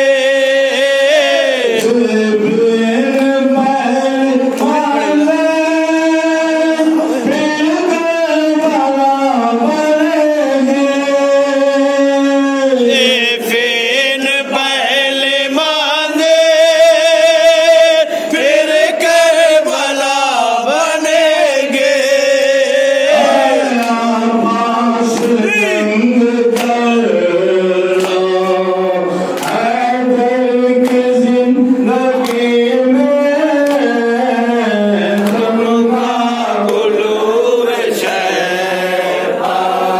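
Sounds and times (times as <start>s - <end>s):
men chanting a lament: 0.0s - 39.9s
hands slapping chests: 29.3s - 29.6s.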